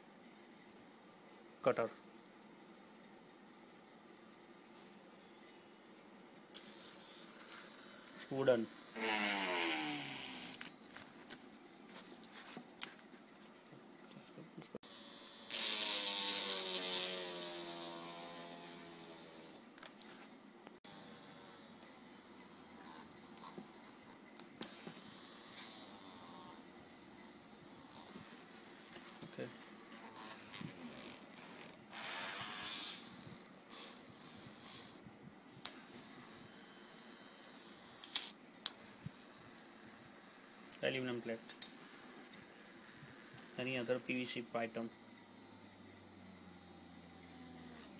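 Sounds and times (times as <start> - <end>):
small motor whining: 14.8 - 19.6, 20.8 - 35.0, 45.0 - 47.9
screw grinding into wood: 15.5 - 19.6.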